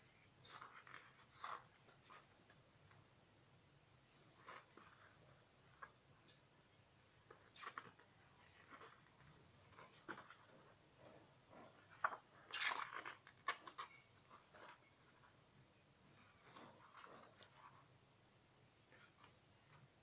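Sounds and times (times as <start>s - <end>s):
pages turning: 7.3s - 10.6s, 11.8s - 14.9s.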